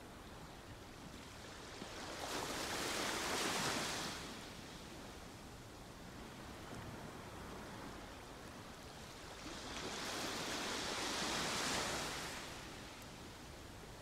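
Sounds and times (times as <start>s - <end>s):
sea waves washing on shore: 9.1s - 14.0s.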